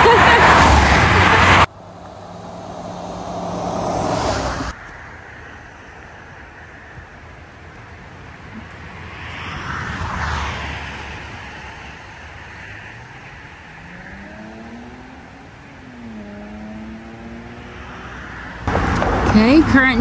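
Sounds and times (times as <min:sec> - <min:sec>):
engine accelerating: 0:00.0 - 0:04.8, 0:10.9 - 0:19.6
passing traffic: 0:00.0 - 0:20.0.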